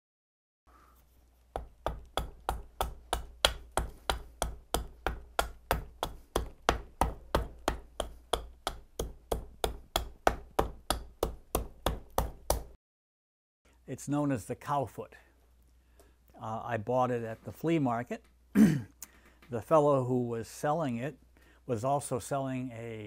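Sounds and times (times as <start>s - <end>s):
hatchet chopping wood: 1.6s - 12.8s.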